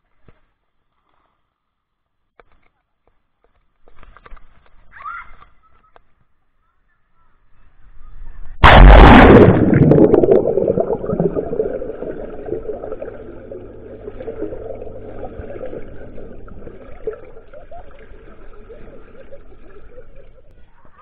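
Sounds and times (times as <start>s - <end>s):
loud splash into water: 8.6s - 16.8s
muffled underwater rushing: 8.6s - 20.5s.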